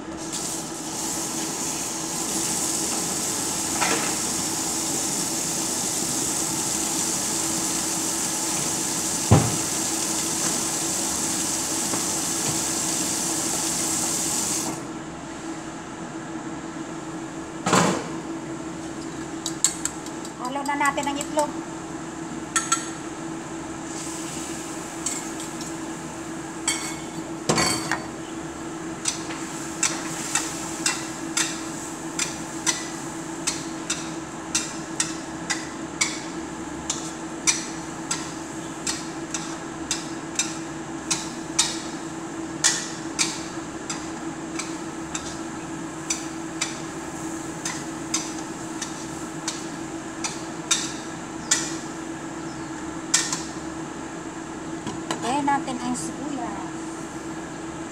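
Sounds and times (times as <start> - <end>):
steady hum: 14.7 - 57.9.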